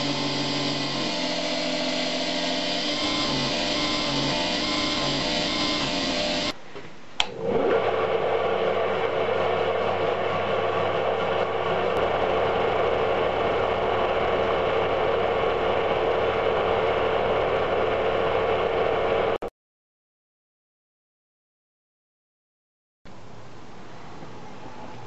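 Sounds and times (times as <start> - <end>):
electric motor humming: 0.0 - 6.6.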